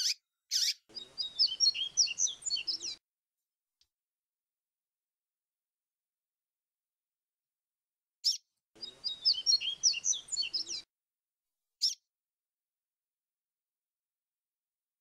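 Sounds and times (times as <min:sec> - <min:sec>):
bird calls: 0:00.0 - 0:03.0, 0:08.2 - 0:10.8, 0:11.8 - 0:12.0
bird song with sliding high notes: 0:00.0 - 0:03.0, 0:08.2 - 0:10.9.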